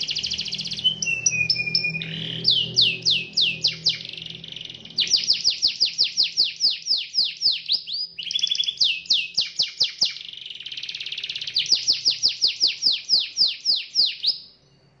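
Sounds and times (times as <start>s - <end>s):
buzzy trill: 0.0s - 6.9s
canary singing: 0.0s - 15.0s.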